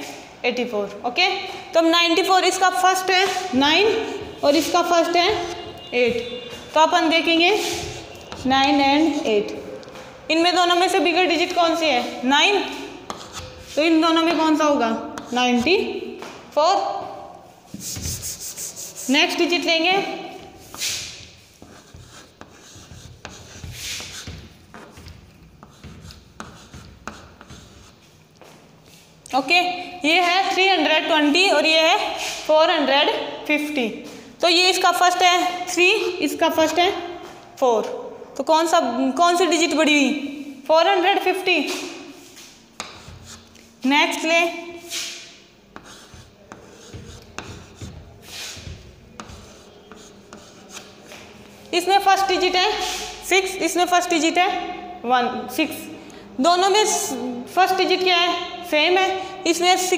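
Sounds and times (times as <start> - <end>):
chalk scratching on chalkboard: 2.4 - 15.9, 17.1 - 29.1, 32.0 - 32.5, 41.7 - 54.1.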